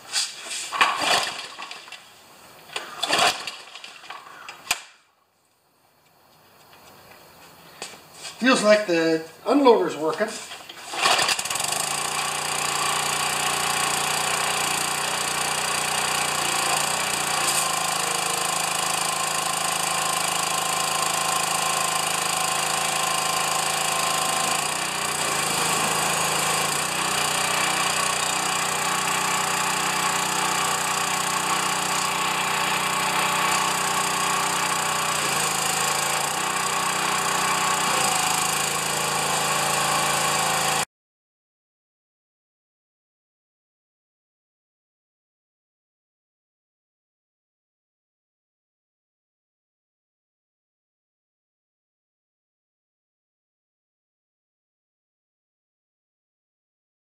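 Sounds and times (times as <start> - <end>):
pressure washer engine running: 10.0 - 40.9.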